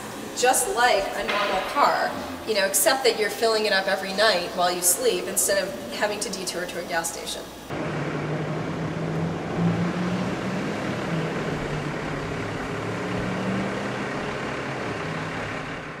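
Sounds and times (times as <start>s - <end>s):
road noise: 0.0s - 2.8s, 7.4s - 16.0s
car engines humming: 7.7s - 16.0s.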